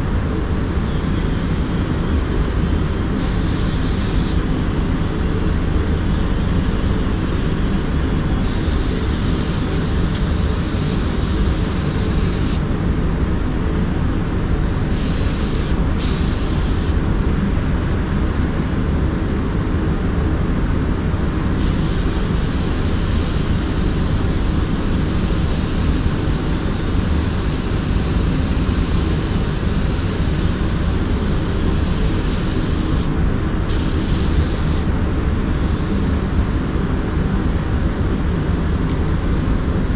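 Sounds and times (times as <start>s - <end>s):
low machine hum: 0.0s - 39.9s
paint spray gun hissing: 3.2s - 4.4s, 8.4s - 12.7s, 14.8s - 17.0s, 21.5s - 34.9s.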